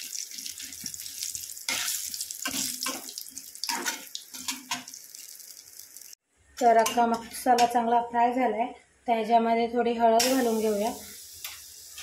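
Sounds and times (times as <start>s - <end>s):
spices sizzling in hot oil: 0.0s - 6.2s, 10.2s - 12.0s.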